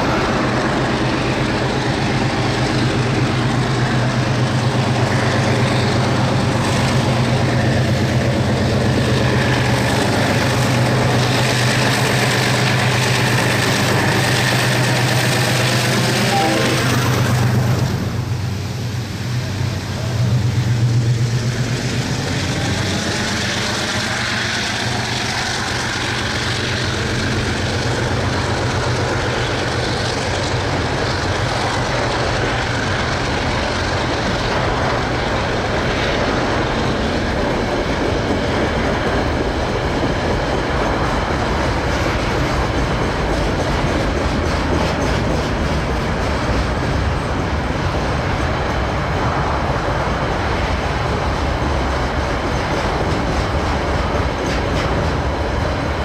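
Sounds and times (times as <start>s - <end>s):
locomotive engine passing: 0.0s - 56.0s
freight wagons wheels clickety-clack: 22.1s - 48.9s, 50.2s - 56.0s.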